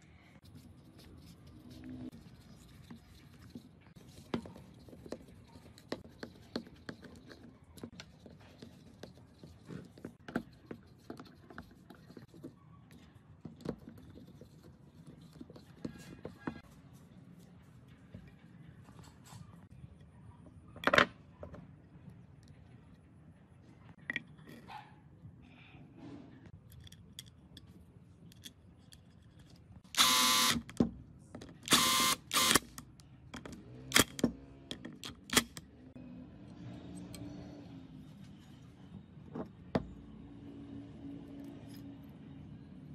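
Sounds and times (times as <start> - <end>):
cordless screwdriver motor: 30.0 - 30.6, 31.7 - 32.7.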